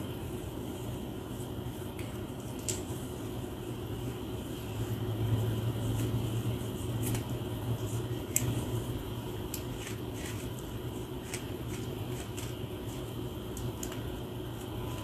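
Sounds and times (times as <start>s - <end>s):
steady low hum: 0.0s - 15.0s
comb rasping through hair: 9.5s - 13.1s.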